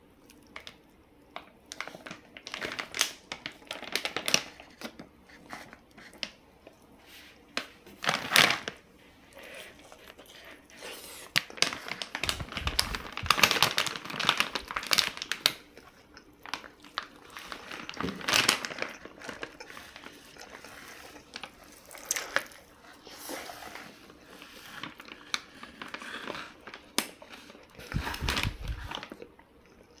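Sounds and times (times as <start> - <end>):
plastic bag crinkling: 1.7 - 5.1, 7.6 - 8.9, 9.7 - 29.3.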